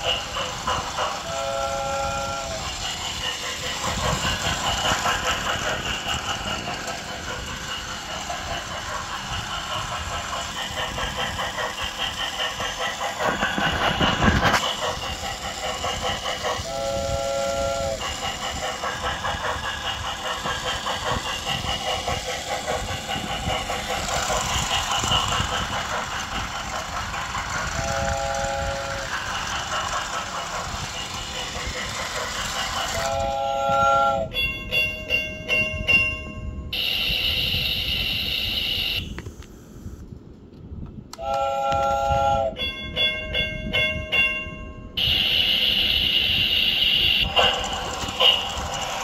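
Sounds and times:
toy train rhythmic clatter: 0.0s - 39.2s, 41.1s - 49.0s
toy train whistle: 1.1s - 4.2s, 16.4s - 18.8s, 27.7s - 29.2s, 33.0s - 35.1s, 36.8s - 39.2s, 41.1s - 42.8s, 45.0s - 48.7s.

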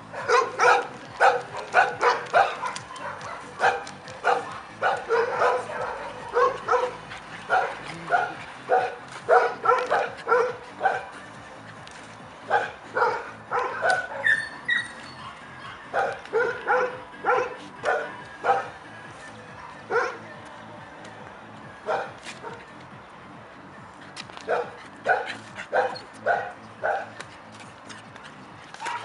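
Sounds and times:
puppies barking: 0.0s - 20.3s, 21.8s - 22.8s, 24.4s - 29.0s.

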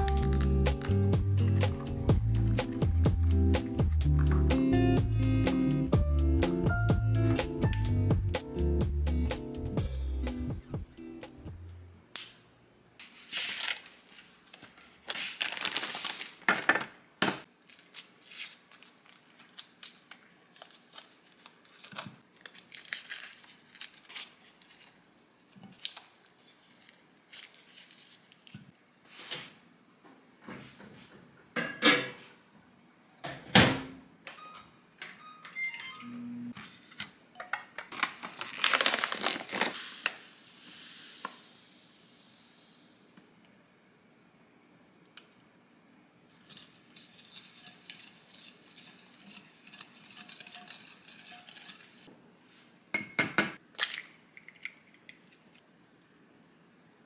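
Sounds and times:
foil wrappers crinkling: 13.0s - 16.9s, 17.6s - 25.0s, 25.7s - 28.5s, 37.9s - 40.2s.

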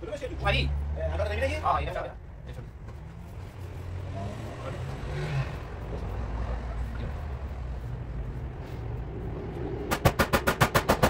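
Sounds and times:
faint background noise: 0.0s - 10.0s
sharp knocks: 9.8s - 11.0s.

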